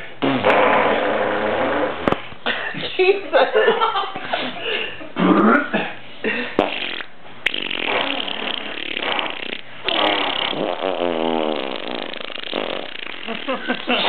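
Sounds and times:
person blowing raspberry fart noises: 0:00.2 - 0:02.3, 0:05.2 - 0:05.8, 0:06.6 - 0:14.0.

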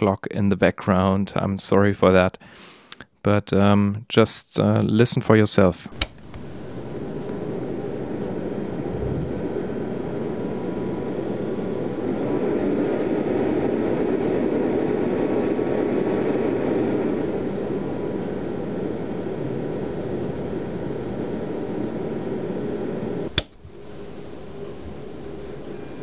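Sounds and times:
cooling fan whirring: 0:05.9 - 0:26.0
low thump: 0:08.9 - 0:09.4.

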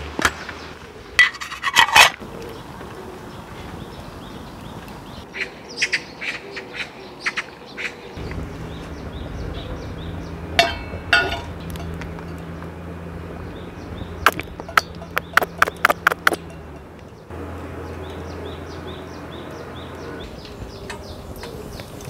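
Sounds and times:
low steady hum: 0:08.2 - 0:22.0
metal pan clanking on stove: 0:10.6 - 0:12.0.

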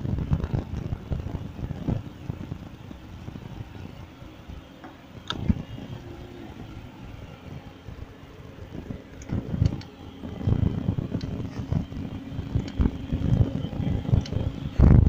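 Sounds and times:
city traffic: 0:00.0 - 0:15.0
road rumble: 0:00.0 - 0:15.0.

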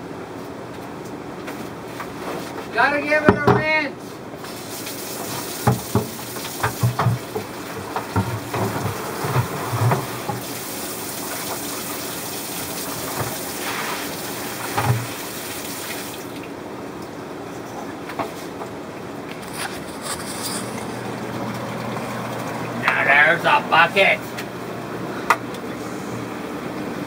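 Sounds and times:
water running from a tap: 0:04.4 - 0:16.5.

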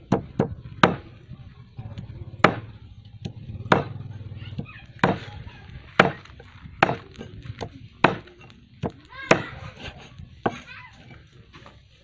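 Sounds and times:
cleaver chopping on wooden block: 0:00.0 - 0:01.0, 0:02.4 - 0:02.7, 0:03.7 - 0:04.0, 0:04.6 - 0:05.3, 0:06.0 - 0:06.2, 0:06.8 - 0:07.0, 0:08.0 - 0:09.5.

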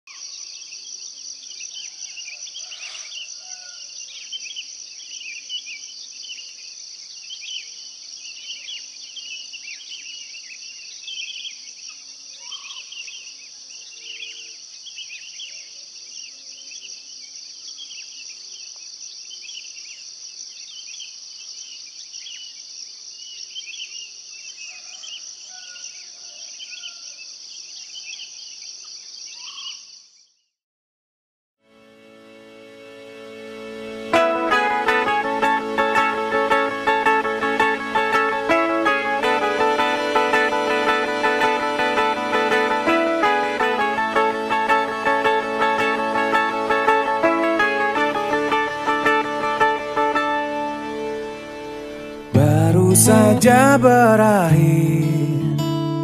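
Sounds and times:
insect chirps: 0:00.1 - 0:30.5.

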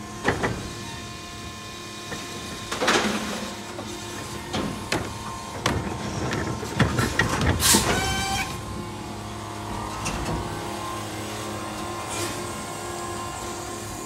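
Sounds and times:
garbage truck clanks and knocks: 0:02.2 - 0:08.8, 0:09.8 - 0:10.8.

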